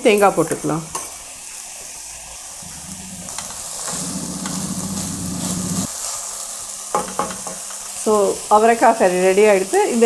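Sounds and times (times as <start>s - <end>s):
food sizzling in a pan: 0.0s - 10.0s
wooden spatula stirring: 2.6s - 5.9s.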